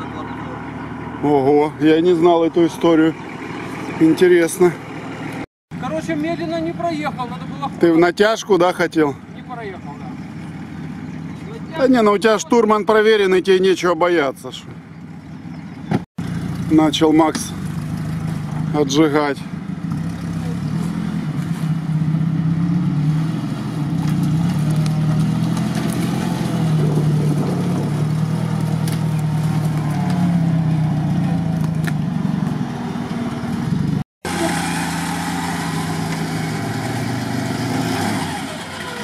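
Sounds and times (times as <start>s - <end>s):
suv engine running steadily: 0.0s - 7.9s, 9.1s - 11.8s
off-road vehicle engine under load: 0.0s - 39.0s.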